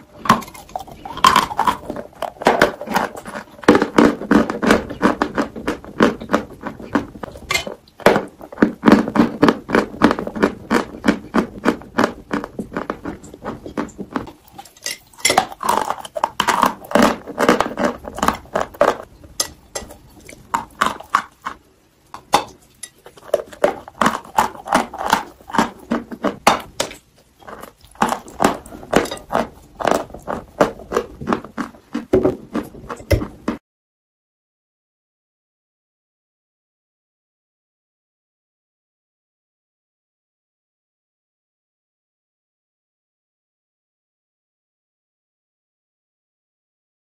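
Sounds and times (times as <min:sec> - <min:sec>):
crunchy chewing of watermelon: 0:00.0 - 0:33.6.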